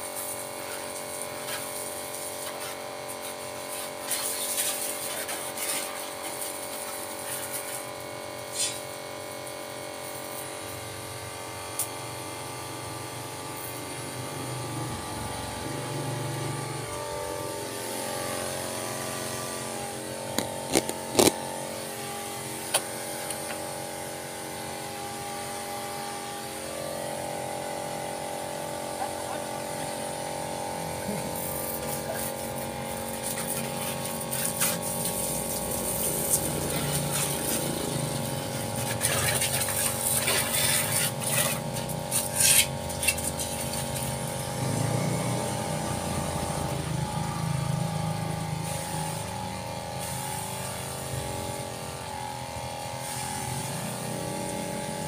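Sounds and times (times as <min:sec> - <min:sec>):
water jet hissing and spattering: 0:00.0 - 0:08.8, 0:31.3 - 0:47.0
pressure washer pump whining: 0:00.0 - 0:55.0.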